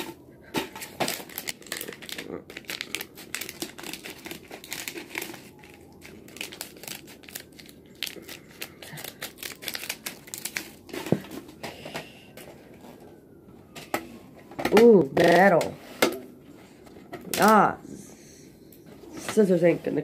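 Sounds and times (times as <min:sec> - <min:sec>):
plastic membrane crackling: 0:00.5 - 0:11.6.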